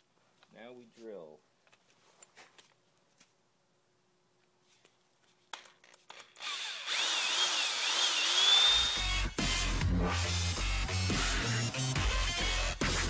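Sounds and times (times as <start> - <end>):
electric drill whining: 6.1 - 9.2.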